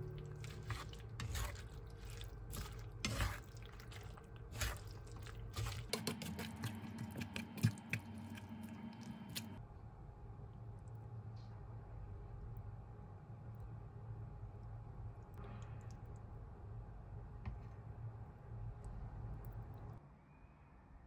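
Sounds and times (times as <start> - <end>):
chopsticks stirring with light clicks: 0.0 - 9.6.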